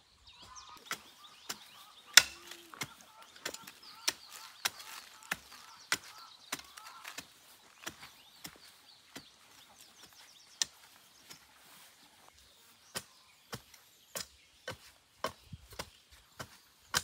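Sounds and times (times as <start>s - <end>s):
birds chirping faintly: 0.0s - 17.0s
hand tool sharp blows: 0.9s - 6.8s.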